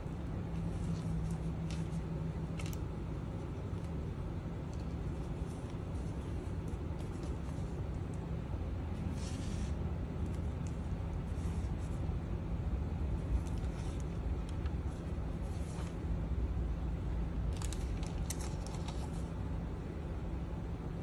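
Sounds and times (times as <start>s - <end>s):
paper pages rustling: 0.4s - 8.2s, 8.9s - 12.1s, 13.2s - 16.0s, 17.5s - 19.4s.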